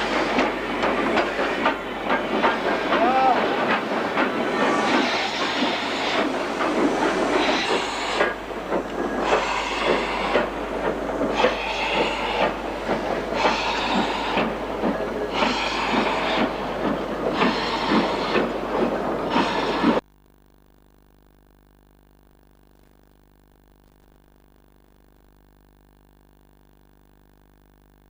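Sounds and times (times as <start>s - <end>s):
clanking of locomotive wheels: 0.0s - 20.0s
steam locomotive exhaust chuffs: 0.0s - 20.0s.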